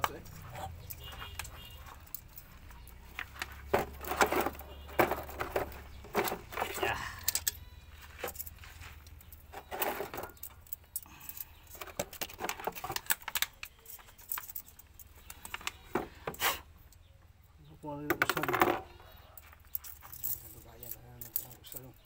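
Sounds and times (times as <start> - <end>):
metallic clicks of valve springs: 7.2 - 7.6.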